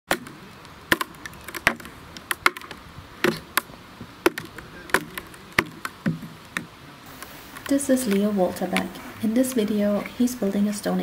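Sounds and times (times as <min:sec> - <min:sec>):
wooden mallet striking wooden wedges: 0:00.1 - 0:06.7.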